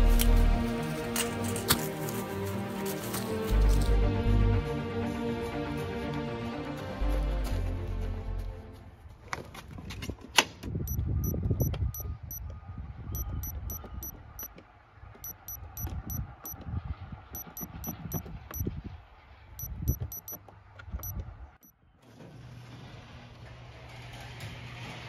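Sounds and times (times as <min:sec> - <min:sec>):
keypad beeps: 0:10.9 - 0:12.5, 0:13.2 - 0:14.5, 0:15.2 - 0:16.6, 0:17.4 - 0:18.7, 0:19.6 - 0:20.4.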